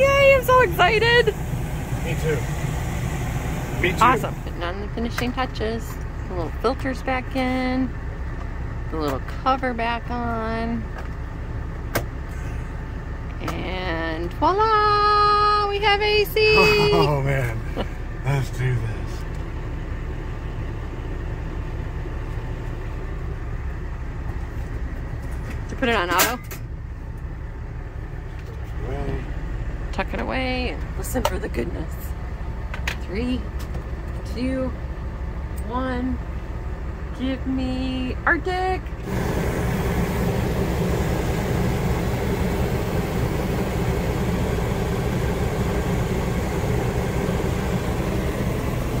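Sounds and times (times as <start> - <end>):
air conditioner blowing air: 0.0 - 49.0.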